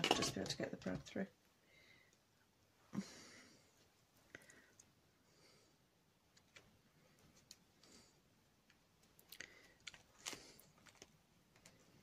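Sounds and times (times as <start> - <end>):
faint clicks and rustles: 6.2 - 12.0.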